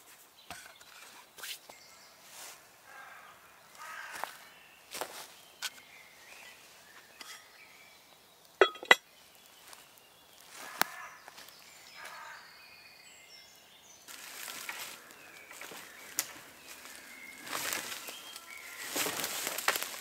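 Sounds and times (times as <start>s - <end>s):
faint bird chirps: 0.5s - 19.4s
cast iron lid clanking on pot: 8.6s - 9.0s.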